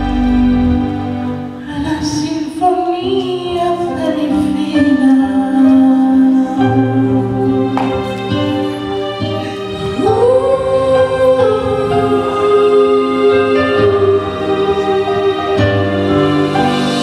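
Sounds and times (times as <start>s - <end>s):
held instrumental chords: 0.0s - 17.0s
woman singing worship song: 1.6s - 8.2s, 9.7s - 15.6s.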